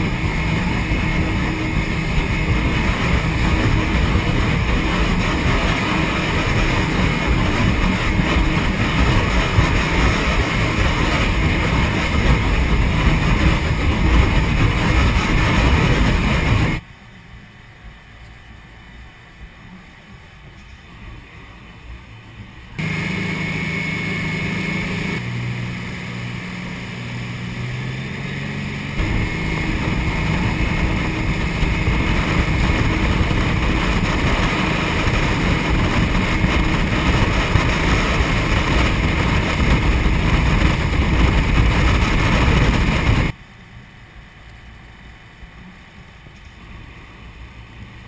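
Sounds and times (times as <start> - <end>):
wind on microphone: 0.0 - 16.8, 22.8 - 43.4
boat engine running at speed: 0.0 - 48.0.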